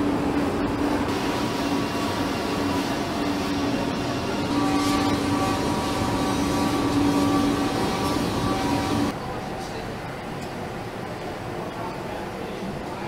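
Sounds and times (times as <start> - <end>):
machinery whine: 0.0 - 9.4
machinery din with low hum: 0.0 - 13.0.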